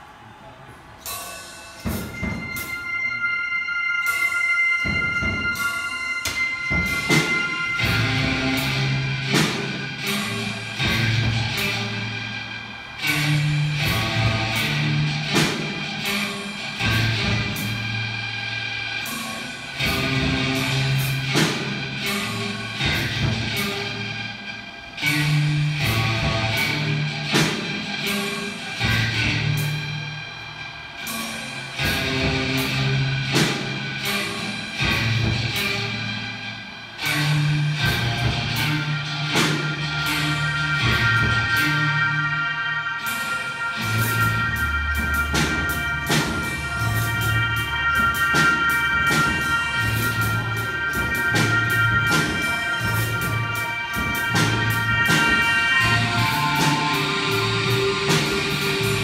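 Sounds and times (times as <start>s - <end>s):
mechanical band music: 1.0s - 18.4s, 37.0s - 59.0s
drum and cymbal hits: 1.0s - 59.0s
drum kit strikes: 4.1s - 11.9s, 44.9s - 59.0s
bass line: 4.8s - 18.8s, 19.6s - 28.0s, 31.8s - 34.1s, 34.7s - 59.0s.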